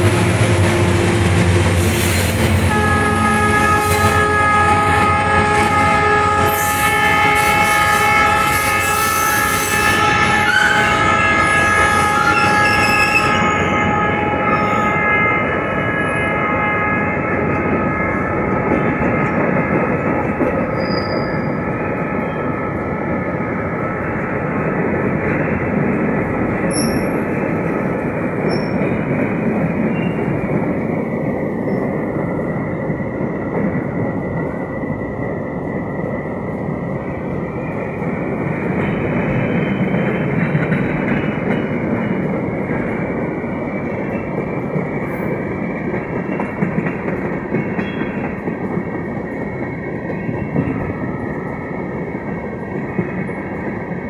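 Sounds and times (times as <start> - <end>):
train wheels rumbling on rails: 0.0 - 54.0
locomotive horn blast: 2.6 - 19.9.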